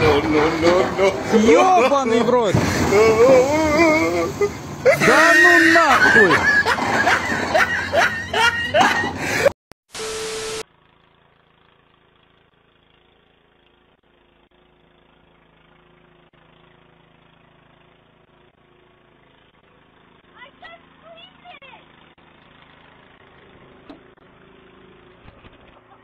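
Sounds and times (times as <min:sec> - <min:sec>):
man shouting: 0:00.0 - 0:06.4
snowblower engine running: 0:00.0 - 0:26.0.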